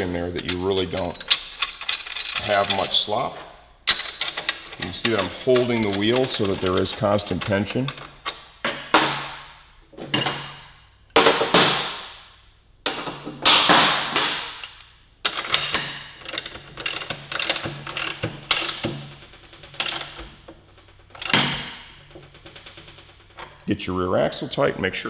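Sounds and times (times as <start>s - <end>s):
socket ratchet clicking: 14.6s - 20.5s, 21.1s - 23.7s
ringing metallic clanks: 21.0s - 23.7s.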